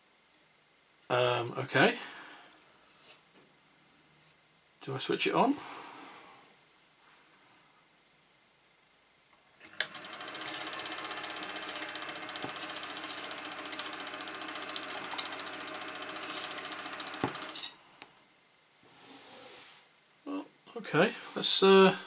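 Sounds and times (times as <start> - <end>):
film projector clattering: 9.6 - 17.7.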